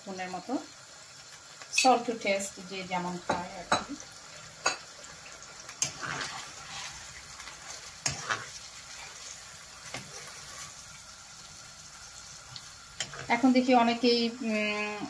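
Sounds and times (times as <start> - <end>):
chicken sizzling in hot oil: 0.0 - 15.0
metal spoon stirring in wok: 5.7 - 10.9, 12.5 - 13.4.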